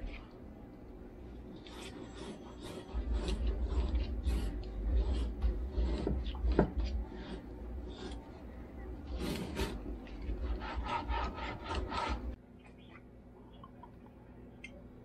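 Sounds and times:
knife cutting meat on plastic mat: 1.4s - 12.4s.

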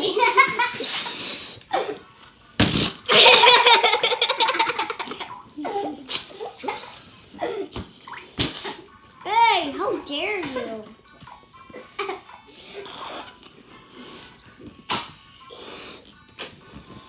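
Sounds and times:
children laughing: 0.0s - 2.0s, 3.0s - 7.8s, 11.7s - 12.6s.

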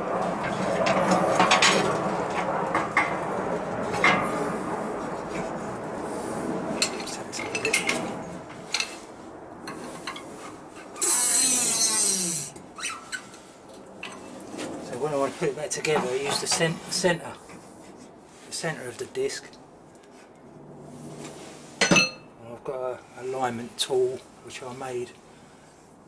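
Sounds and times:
loud rushing noise: 0.0s - 12.6s, 20.4s - 22.4s.

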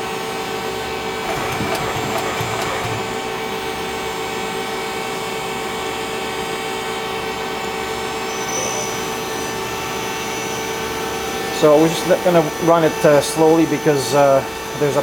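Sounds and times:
lathe machine humming: 1.2s - 3.7s.

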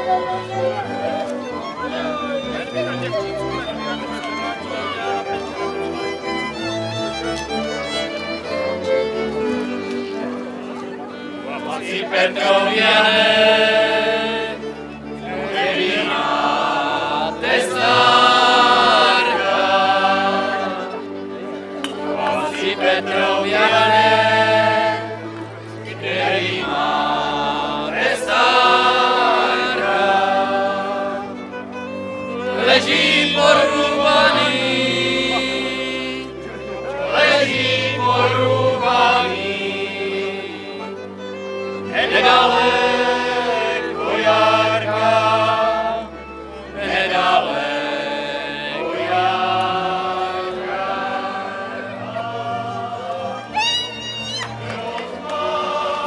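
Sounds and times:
fiddles playing: 0.0s - 56.0s
group of voices singing: 11.6s - 31.5s, 32.2s - 41.1s, 41.7s - 53.7s, 54.5s - 56.0s.

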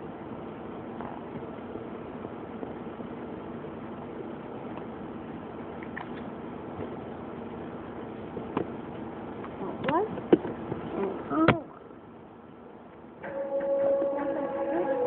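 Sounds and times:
background hum: 0.0s - 15.0s
faint steady tones: 11.0s - 15.0s.

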